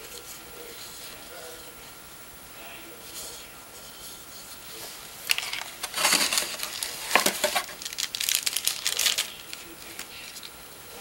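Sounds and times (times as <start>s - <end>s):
plastic packaging crinkling: 5.2s - 10.5s.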